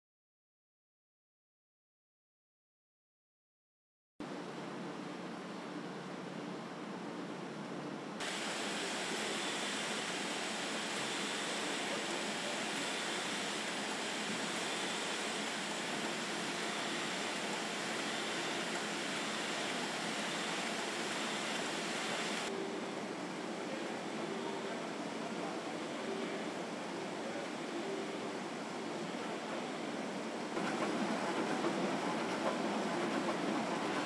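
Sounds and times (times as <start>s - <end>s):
printing press hissing: 8.2s - 22.5s, 30.6s - 34.0s.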